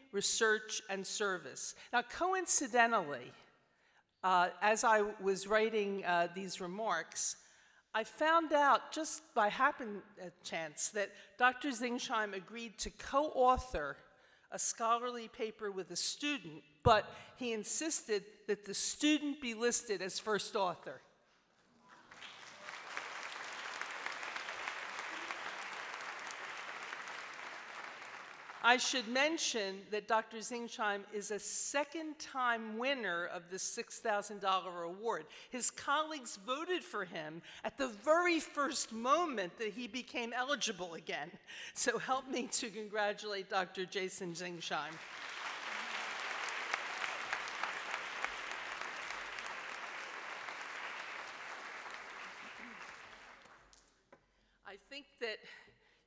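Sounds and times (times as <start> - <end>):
audience clapping: 21.9 - 28.6, 44.9 - 54.0.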